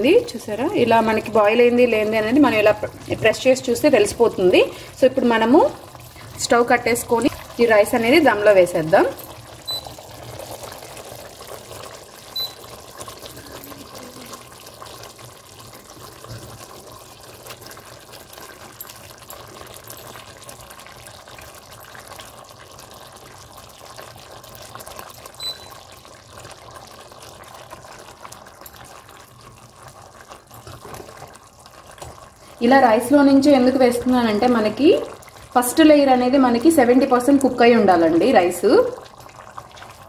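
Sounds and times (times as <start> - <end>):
water draining and splashing: 0.8 - 32.7
faint short beeps: 9.7 - 10.0, 12.4 - 12.6, 25.4 - 25.7.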